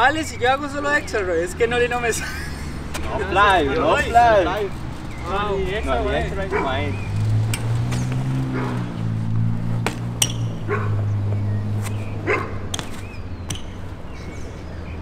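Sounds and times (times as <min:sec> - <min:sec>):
dog barking: 0:06.5 - 0:07.0, 0:08.5 - 0:08.9, 0:10.6 - 0:11.0, 0:12.2 - 0:12.7.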